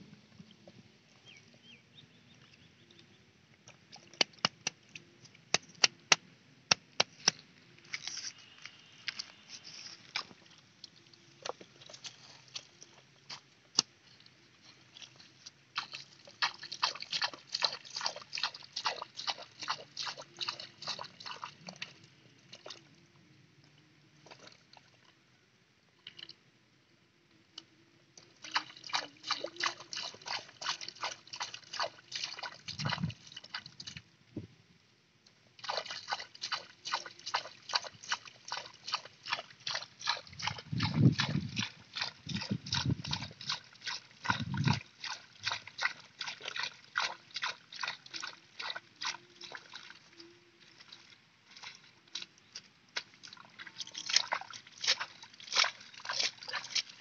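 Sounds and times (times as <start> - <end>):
hands splashing in muddy puddle: 14.9 - 21.5, 28.5 - 34.0, 35.6 - 50.0, 50.8 - 57.0.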